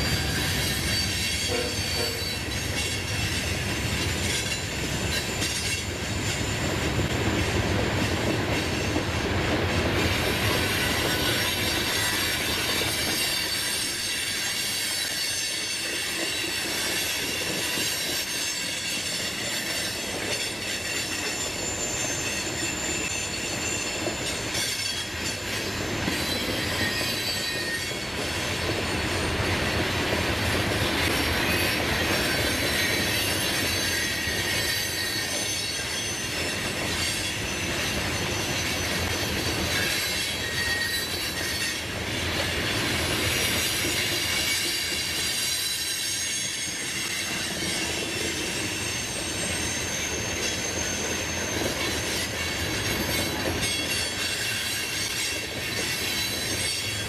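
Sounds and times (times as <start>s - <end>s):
high-pitched wheel squeal: 0.0s - 6.8s, 10.4s - 29.2s, 31.0s - 41.9s, 42.7s - 57.0s
train wheels rumbling on rails: 0.0s - 57.0s.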